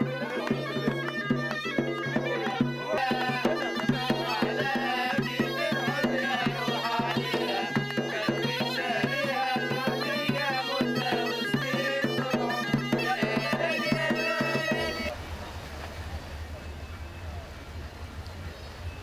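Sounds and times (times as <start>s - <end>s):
hand-clapping: 0.0s - 4.4s, 7.1s - 8.1s
double-headed drum beats: 0.0s - 15.1s
goatskin bagpipe playing folk tune: 0.0s - 15.1s.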